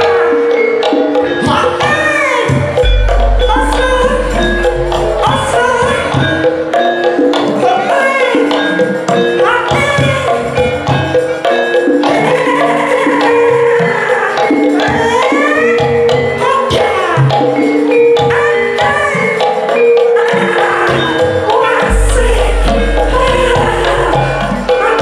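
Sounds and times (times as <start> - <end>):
gamelan music: 0.0 - 25.0
deep low boom: 2.8 - 6.1, 21.9 - 24.7.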